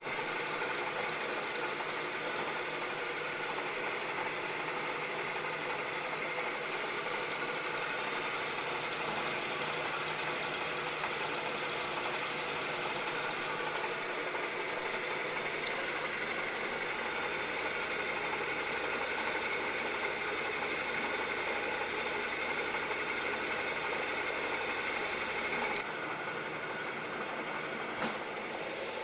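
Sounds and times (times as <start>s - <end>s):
milling machine cutting: 0.0s - 29.0s.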